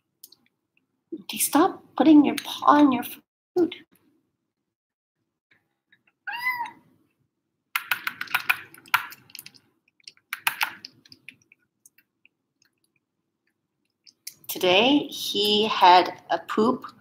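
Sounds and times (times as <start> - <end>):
cat meowing: 6.3 - 6.8
plastic spoon clicking in bowl: 7.8 - 12.0.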